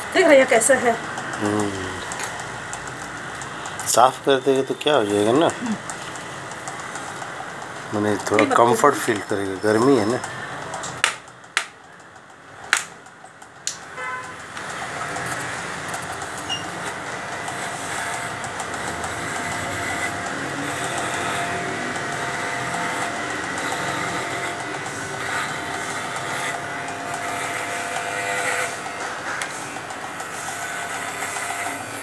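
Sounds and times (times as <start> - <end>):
electric clipper buzzing: 0.0 - 7.2, 7.9 - 10.3, 13.7 - 32.0
sharp clicks: 10.1 - 31.7.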